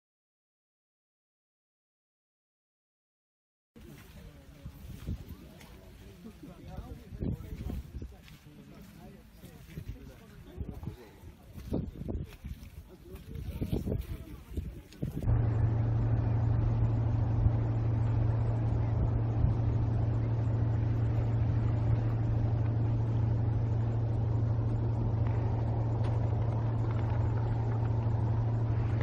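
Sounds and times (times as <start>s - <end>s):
low mechanical hum: 13.5s - 29.0s.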